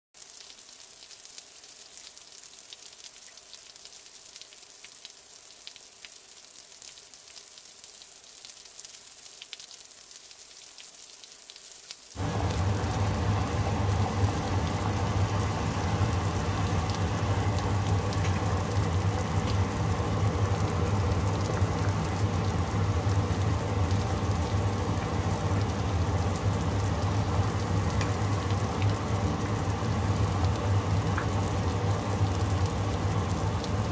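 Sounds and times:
faint hiss with crackles: 0:00.2 - 0:33.9
low hum: 0:12.2 - 0:33.8
pot of soup boiling hard: 0:12.2 - 0:33.9.

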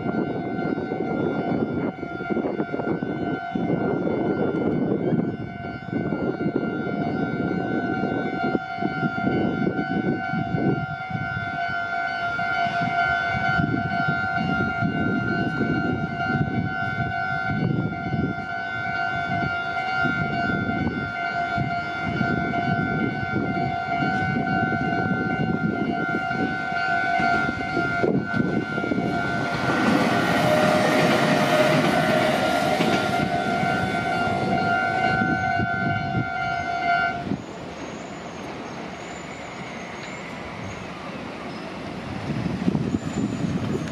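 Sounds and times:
train passing rumble: 0:00.0 - 0:43.9.

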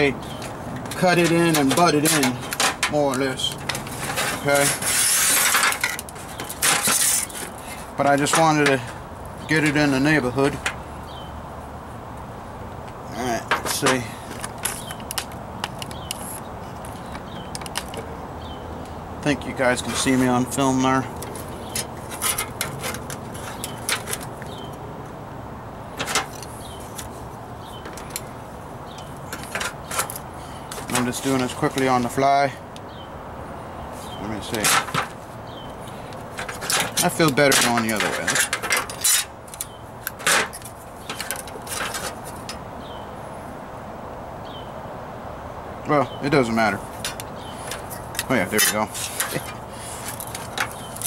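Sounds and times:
steady background noise: 0:00.0 - 0:51.0
sharp metal clicks and knocks: 0:00.2 - 0:10.8, 0:12.8 - 0:18.1, 0:21.1 - 0:24.8, 0:26.0 - 0:27.1, 0:27.7 - 0:28.3, 0:28.9 - 0:32.0, 0:35.8 - 0:42.7, 0:46.9 - 0:51.0.

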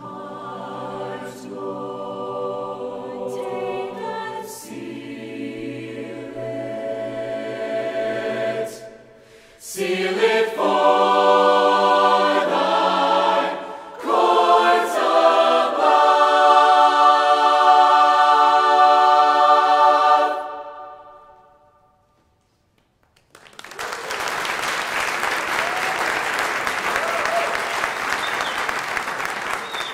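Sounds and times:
choir singing: 0:00.0 - 0:21.9
audience applause: 0:23.2 - 0:29.9.

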